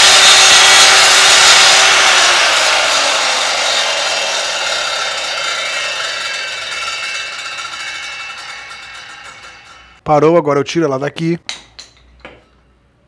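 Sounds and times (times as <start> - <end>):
circular saw spinning down: 0.0 - 10.0.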